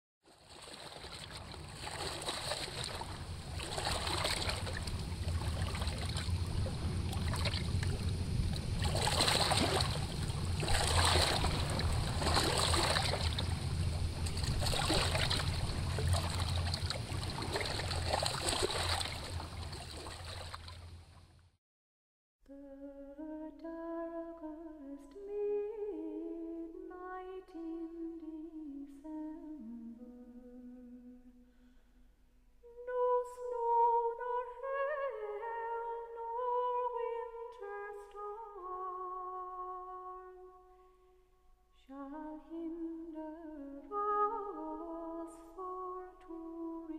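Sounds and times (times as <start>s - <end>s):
water splashing over rocks: 0.4s - 20.9s
low rumble: 1.5s - 21.0s
person humming a melody: 22.5s - 31.4s, 32.6s - 40.6s, 41.8s - 46.9s.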